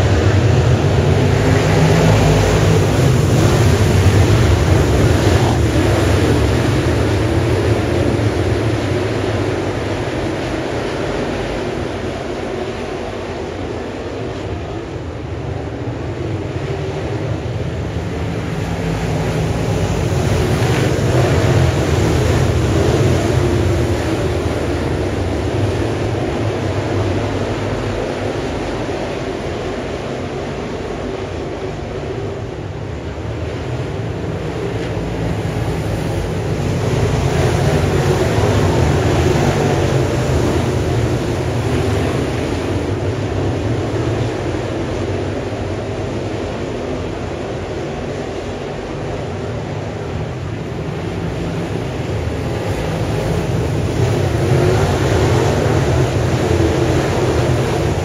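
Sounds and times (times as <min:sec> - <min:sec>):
race cars passing: 0:00.0 - 0:58.0.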